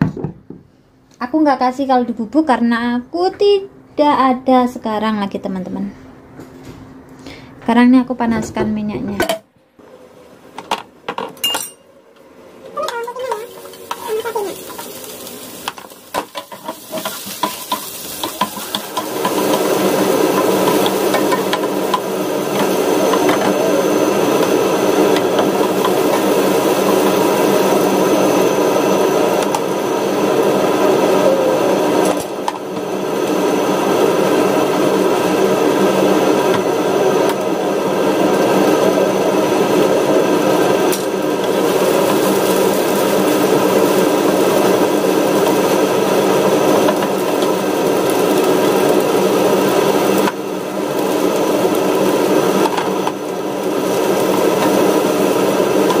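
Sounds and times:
steady mechanical hum: 0.0s - 56.0s
garlic frying in oil: 12.8s - 29.8s, 40.9s - 56.0s.

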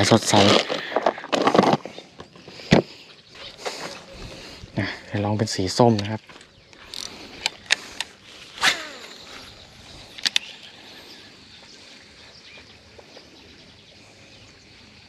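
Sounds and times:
low outdoor background: 0.0s - 15.0s
lure cast swish: 8.6s - 9.1s.

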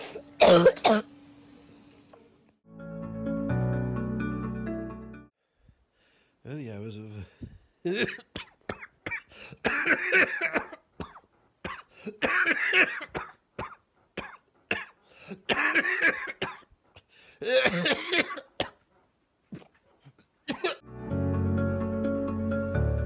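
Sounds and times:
man coughing: 0.4s - 1.1s, 7.9s - 16.7s, 17.4s - 18.8s, 20.5s - 20.8s.

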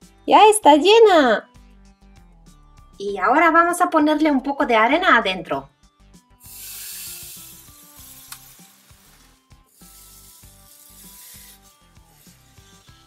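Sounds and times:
sand pouring into plastic: 6.4s - 11.8s.

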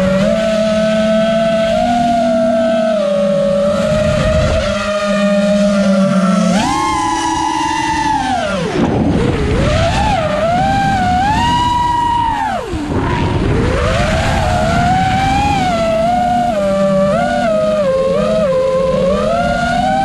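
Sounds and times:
quadcopter motors whining: 0.0s - 20.0s
air rushing: 10.8s - 15.7s.

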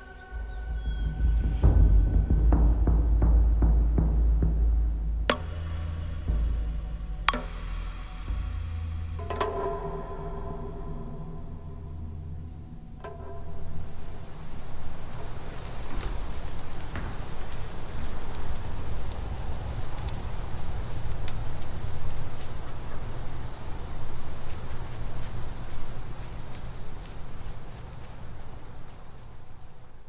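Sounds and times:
insect high-pitched trill: 0.0s - 30.0s
low outdoor rumble: 0.0s - 30.0s
faint ticks: 15.1s - 23.1s.

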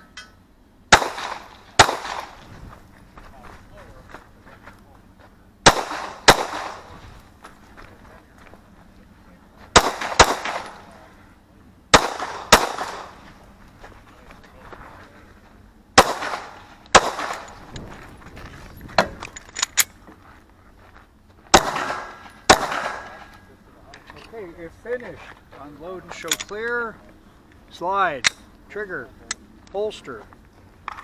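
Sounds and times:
pistol shots with echo: 0.9s - 2.4s, 5.6s - 6.9s, 9.7s - 10.9s, 11.9s - 13.2s, 16.0s - 17.6s, 21.5s - 23.4s.

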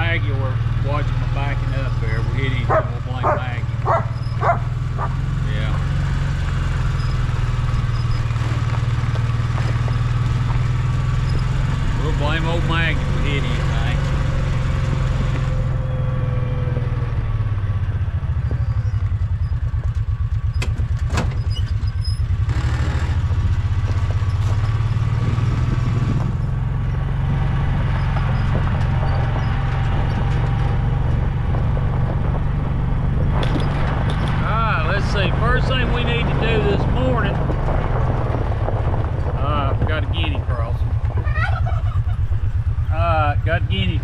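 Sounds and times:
utility vehicle engine rumbling: 0.0s - 44.0s.

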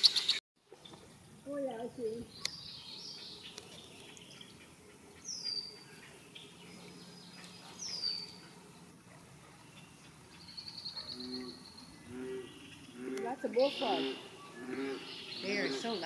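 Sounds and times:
faint bird chirps: 9.7s - 16.0s.

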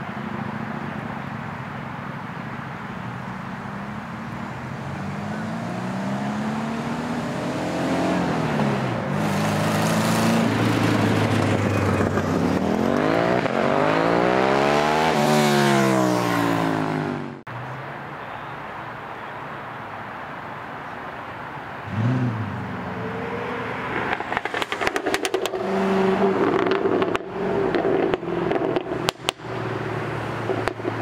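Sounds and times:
car engine accelerating: 4.7s - 17.5s, 21.8s - 31.0s.

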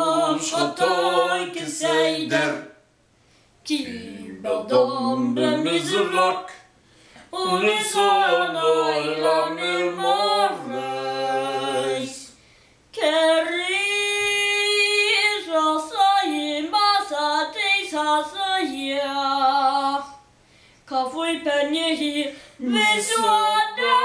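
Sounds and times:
boy singing chant: 3.7s - 6.7s, 7.4s - 12.3s, 13.0s - 20.2s, 20.9s - 24.0s.

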